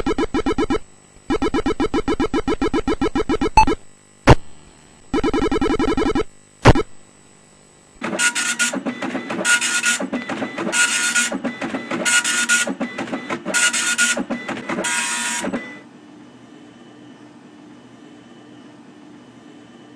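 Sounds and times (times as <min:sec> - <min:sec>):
dot-matrix printer printing: 0:00.0 - 0:03.7, 0:05.2 - 0:06.9, 0:08.0 - 0:15.8.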